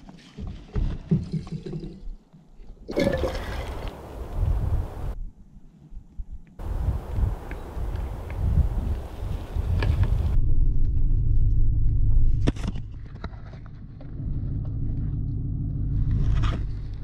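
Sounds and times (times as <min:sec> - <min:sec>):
truck engine low rumble: 0:06.6 - 0:17.0.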